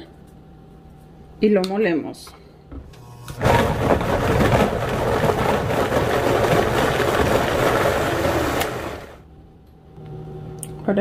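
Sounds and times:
blender running: 0:03.0 - 0:09.2.

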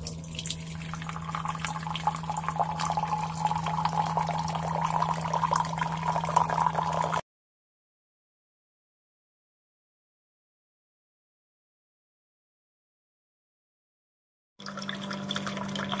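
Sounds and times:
water pouring into a mug: 0:00.0 - 0:07.2, 0:14.6 - 0:16.0.

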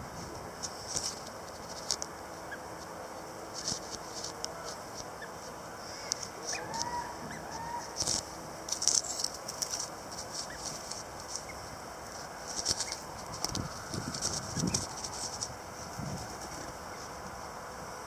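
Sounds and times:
lower arching bird calls: 0:04.5 - 0:08.2.

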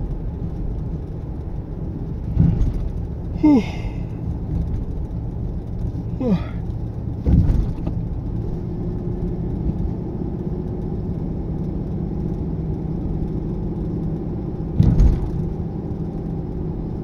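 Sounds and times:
car cabin road and engine hum: 0:00.0 - 0:17.0
short thump: 0:02.3 - 0:02.9, 0:14.8 - 0:15.4.

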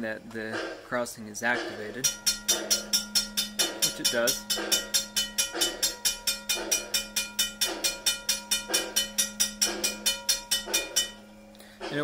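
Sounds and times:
railroad crossing bell ringing: 0:02.1 - 0:11.4.

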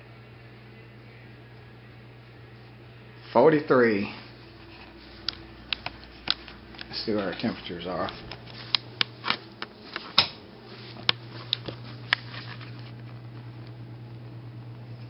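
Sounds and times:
freezer humming: 0:00.0 - 0:15.0
footsteps: 0:04.0 - 0:13.6.

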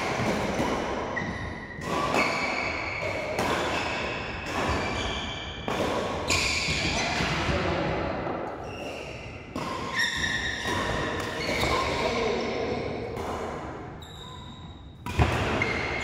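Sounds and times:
shoes squeaking on court floor: 0:00.2 - 0:07.3, 0:08.6 - 0:12.7, 0:14.0 - 0:16.0
rackets striking shuttlecock: 0:13.0 - 0:14.0, 0:15.0 - 0:16.0.

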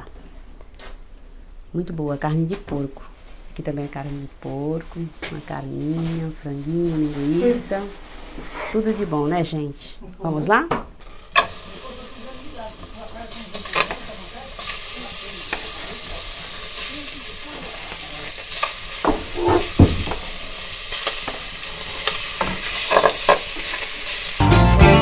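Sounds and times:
meat sizzling in hot pan: 0:11.0 - 0:24.4
spatula knocking and scraping: 0:19.0 - 0:20.4.

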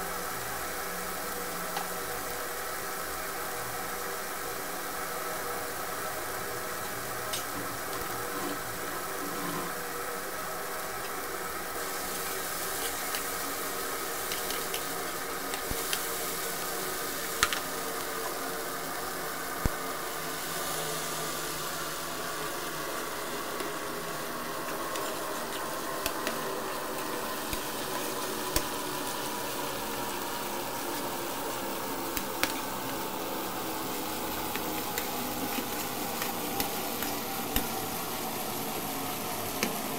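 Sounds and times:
fish sizzling in a pan: 0:00.0 - 0:39.9
metal spoon scraping a pan: 0:07.3 - 0:09.8.

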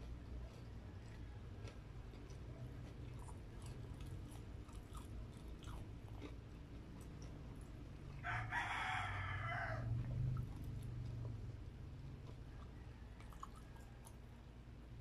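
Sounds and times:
chewing with mouth clicks: 0:00.0 - 0:08.2, 0:10.0 - 0:14.5
rooster crowing: 0:08.2 - 0:10.3, 0:12.4 - 0:14.2.

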